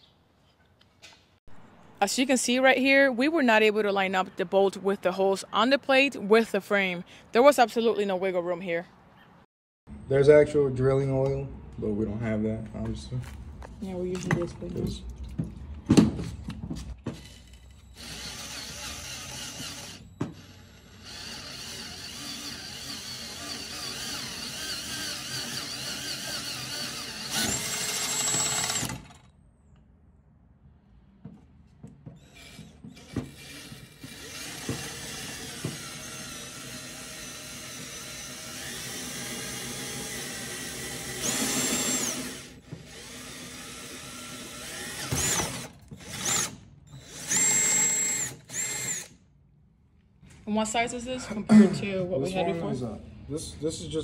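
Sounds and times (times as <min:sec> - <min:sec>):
power drill boring metal: 0:17.2 - 0:29.3, 0:32.2 - 0:49.2.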